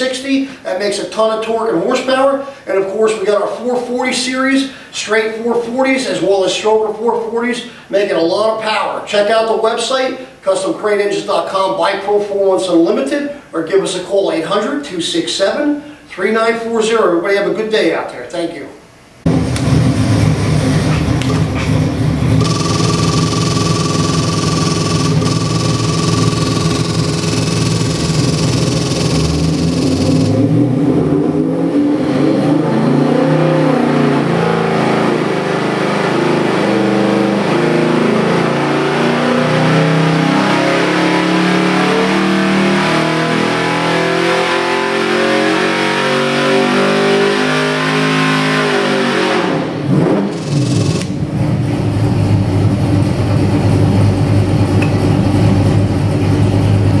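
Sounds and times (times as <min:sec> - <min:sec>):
engine revving under load: 0:19.2 - 0:53.5
engine idling: 0:19.3 - 0:30.5.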